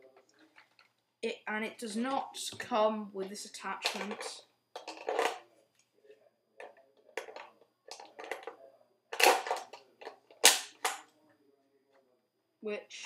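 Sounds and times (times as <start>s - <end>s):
plastic parts clicking and scraping: 3.8s - 5.5s, 6.6s - 11.0s.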